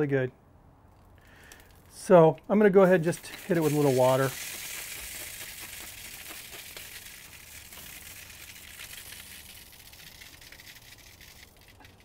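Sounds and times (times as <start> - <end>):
meat sizzling and crackling on grill: 3.0 - 11.8.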